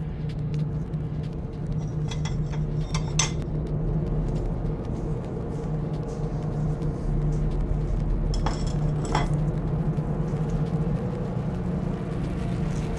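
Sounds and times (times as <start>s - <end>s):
steady low hum: 0.0s - 12.9s
ceramic plate clinking: 1.8s - 3.4s, 8.4s - 9.4s.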